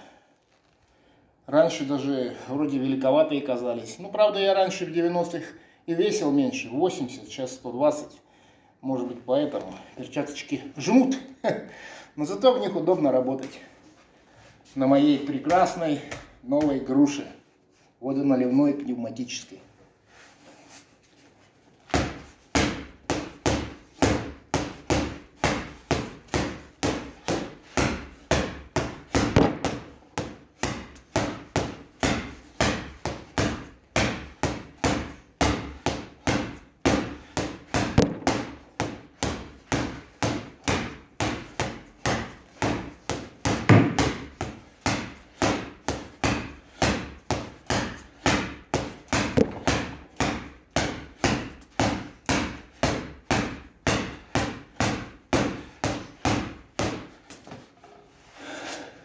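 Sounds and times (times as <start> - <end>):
gloves punching a bag: 15.2 - 17.0, 21.8 - 57.6.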